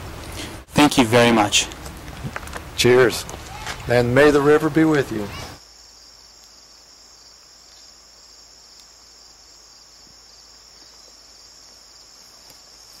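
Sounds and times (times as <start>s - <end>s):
insects trilling: 2.8s - 13.0s.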